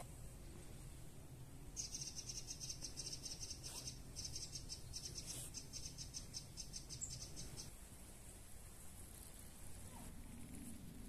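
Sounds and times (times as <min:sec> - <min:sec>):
faint high chirping pulses: 0:00.0 - 0:08.3.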